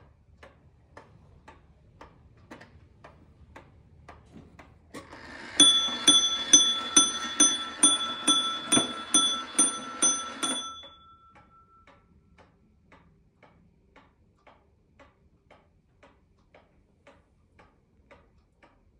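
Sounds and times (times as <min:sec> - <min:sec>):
clock ticking: 0:00.4 - 0:18.9
wall clock striking: 0:05.0 - 0:12.0.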